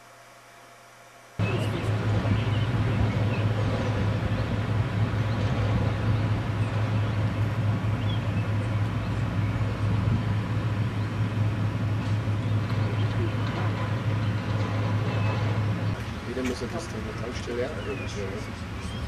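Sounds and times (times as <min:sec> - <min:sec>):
constant low hum: 0:00.0 - 0:19.0.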